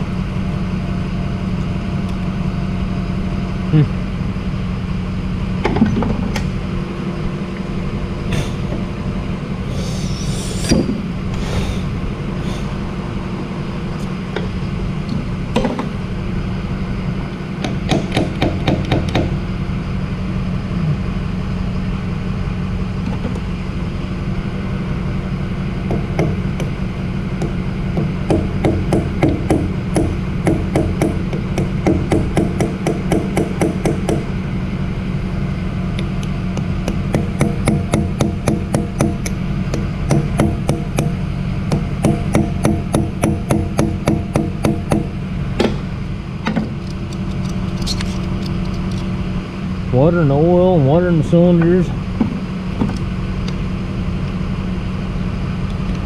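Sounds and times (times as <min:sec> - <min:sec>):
steady low hum: 0:00.0 - 0:56.0
hammer striking metal punch: 0:17.6 - 0:19.3, 0:25.9 - 0:26.8, 0:27.4 - 0:34.3, 0:36.6 - 0:45.9.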